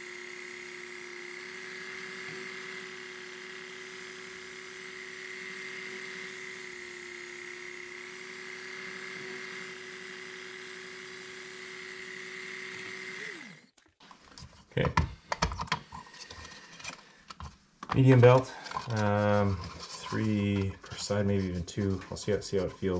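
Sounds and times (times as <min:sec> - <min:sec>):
belt sharpener motor humming: 0:00.0 - 0:13.8.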